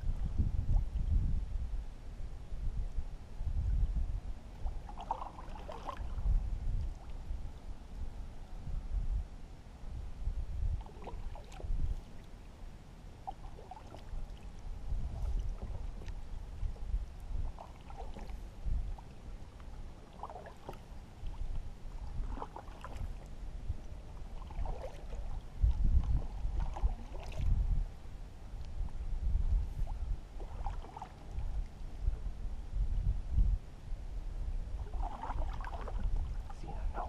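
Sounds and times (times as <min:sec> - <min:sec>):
low uneven rumble: 0:00.0 - 0:37.0
paddle strokes splashing water: 0:04.6 - 0:07.2, 0:10.8 - 0:12.5, 0:13.2 - 0:27.5, 0:29.7 - 0:31.8, 0:34.8 - 0:37.0.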